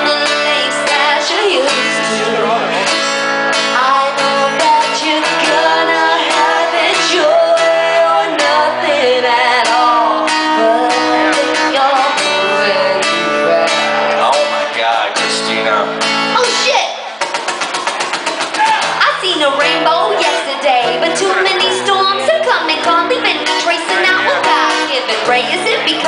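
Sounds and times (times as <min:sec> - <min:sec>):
person singing: 0:00.0 - 0:03.0, 0:03.6 - 0:14.8, 0:19.6 - 0:26.0
acoustic guitar strumming: 0:00.0 - 0:26.0.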